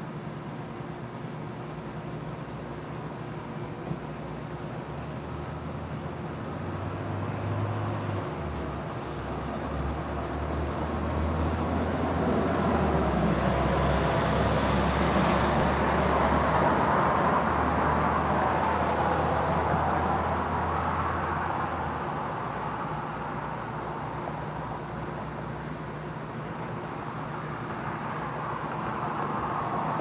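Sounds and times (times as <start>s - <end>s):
car passing: 6.5s - 23.6s.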